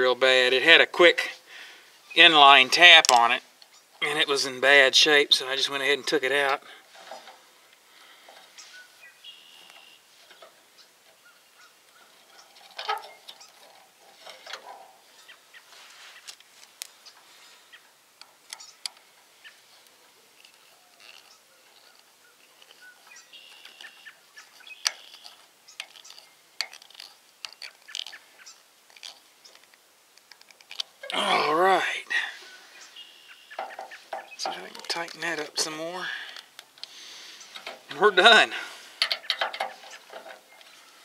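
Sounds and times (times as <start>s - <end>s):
birds chirping faintly: 0.0s - 41.0s
wires clicking and rustling: 9.6s - 17.5s, 18.1s - 31.8s, 33.5s - 41.0s.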